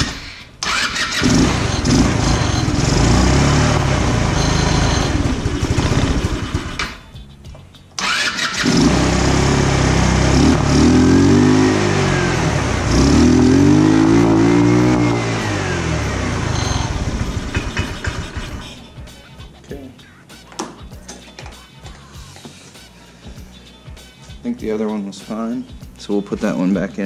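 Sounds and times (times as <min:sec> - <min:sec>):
scooter engine running rough: 0:00.7 - 0:06.9, 0:08.5 - 0:18.7.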